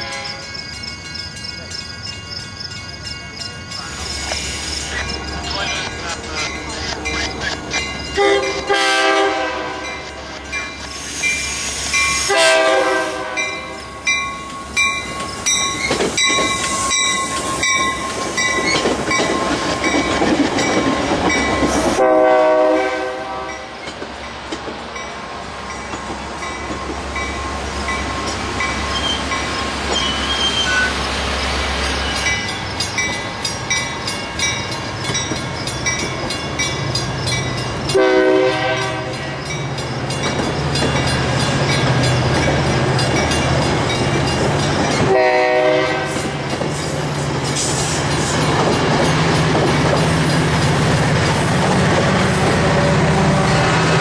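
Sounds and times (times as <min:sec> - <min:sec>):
train horn blasts: 0:00.0 - 0:00.5, 0:08.2 - 0:10.0, 0:12.2 - 0:13.8, 0:21.9 - 0:23.8, 0:37.9 - 0:39.4, 0:45.0 - 0:46.5, 0:52.6 - 0:54.0
deep train rumble: 0:00.0 - 0:54.0
train wheels clicking over rail joints: 0:14.0 - 0:22.0, 0:23.8 - 0:38.0, 0:39.0 - 0:45.2, 0:46.0 - 0:52.7.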